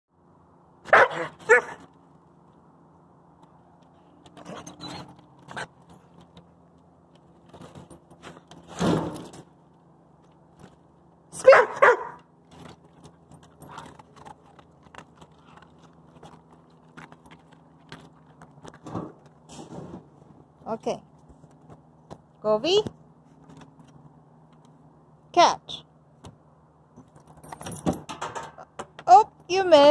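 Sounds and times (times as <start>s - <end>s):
dog barks: 0.8s - 1.9s, 11.4s - 12.2s
collar tags jangling: 11.4s - 18.4s, 26.9s - 28.6s.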